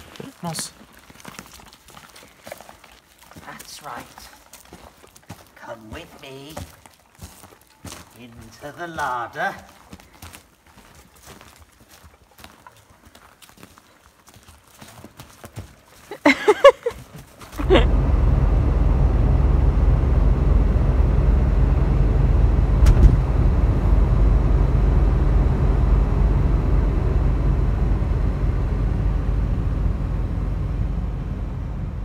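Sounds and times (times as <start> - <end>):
engine and road rumble: 17.6 - 32.0.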